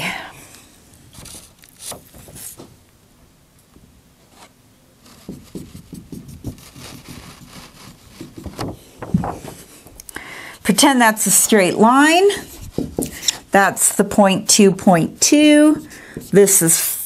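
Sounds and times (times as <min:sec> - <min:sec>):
faint scratches: 0:04.3 - 0:09.7
marker rubbing on whiteboard: 0:05.1 - 0:08.8.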